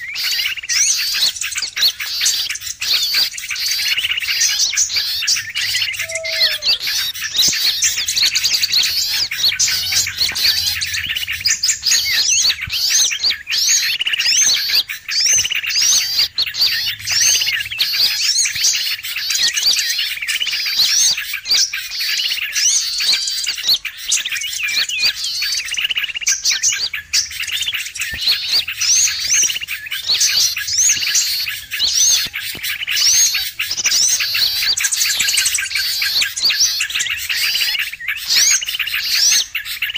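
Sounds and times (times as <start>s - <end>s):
low falling bird whistle: 0.0s - 39.9s
songbirds chirping and twittering: 0.0s - 39.9s.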